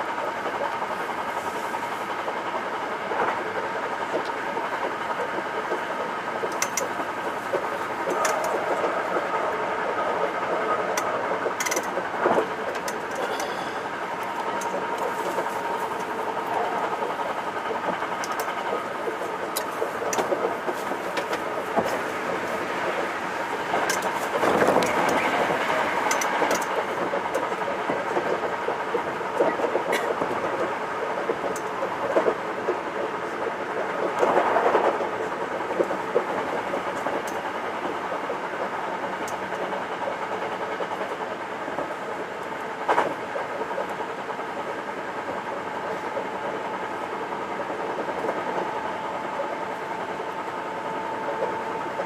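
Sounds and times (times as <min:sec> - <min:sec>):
electric train running noise: 0:00.0 - 0:52.0
wheels clacking over rail joints: 0:11.0 - 0:33.4.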